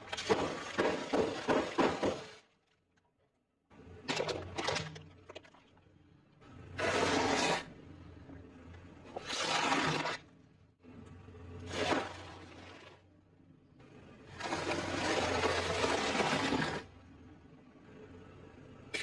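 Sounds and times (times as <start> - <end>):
low hum: 3.6 - 9.3, 10.1 - 19.0.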